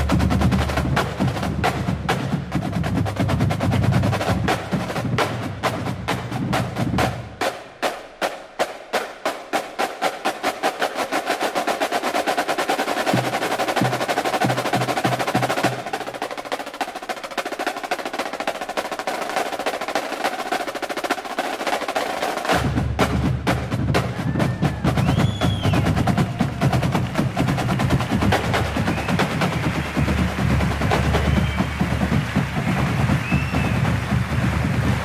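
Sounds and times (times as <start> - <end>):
bass drum beats: 0.0 - 7.5, 22.5 - 35.0
side drums playing rudiments: 0.0 - 35.0.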